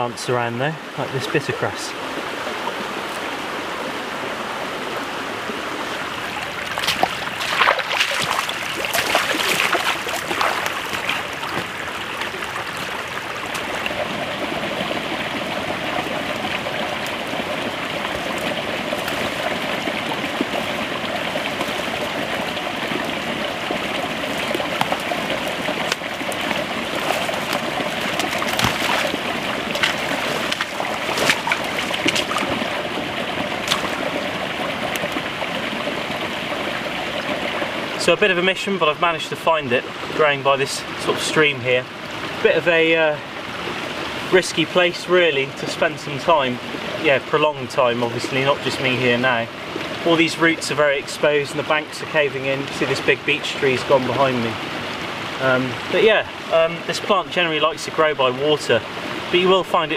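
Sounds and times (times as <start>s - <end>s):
stream running over stones: 0.0s - 59.9s.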